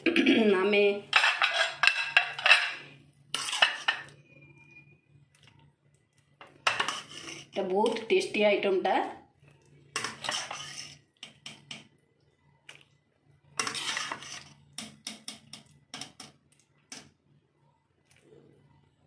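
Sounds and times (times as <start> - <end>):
spoon scraping a pan: 0.1 - 4.9, 6.4 - 8.1, 9.9 - 11.9, 13.6 - 17.1.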